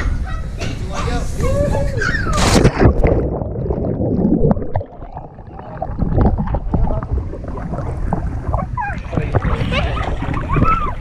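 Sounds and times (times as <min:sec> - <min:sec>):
water sloshing and bubbling: 0:02.2 - 0:11.0
loud splash into water: 0:02.3 - 0:08.6
muffled underwater churning: 0:02.3 - 0:11.0.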